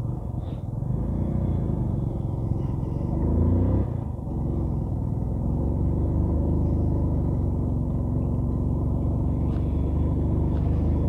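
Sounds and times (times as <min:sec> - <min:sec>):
motorcycle engine revving: 0:00.8 - 0:11.0.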